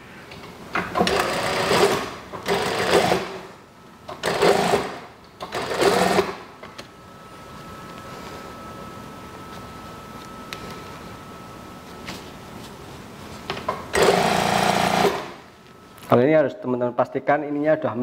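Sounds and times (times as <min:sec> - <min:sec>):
faint hum with thin whine: 0:00.0 - 0:18.0
sewing machine stitching: 0:01.0 - 0:03.4, 0:13.9 - 0:15.4.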